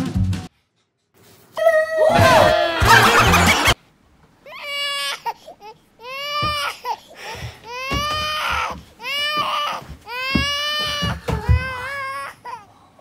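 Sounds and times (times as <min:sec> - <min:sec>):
baby crying: 0:01.6 - 0:03.8, 0:04.5 - 0:12.7
loud music: 0:02.8 - 0:03.8.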